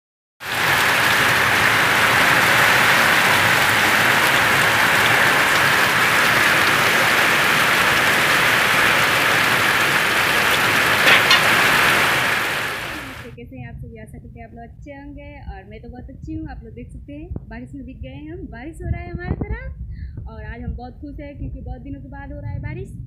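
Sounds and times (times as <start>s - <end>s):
rain falling steadily: 0.4s - 13.4s.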